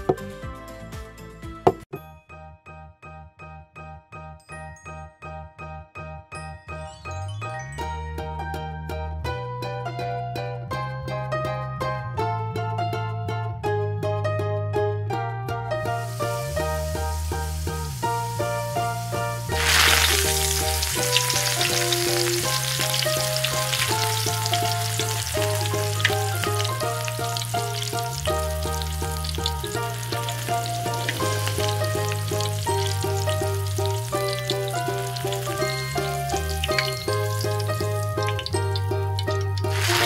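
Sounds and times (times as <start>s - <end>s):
background music with bass line: 0.0s - 1.8s, 6.8s - 40.0s
chicken sizzling in hot oil: 15.9s - 40.0s.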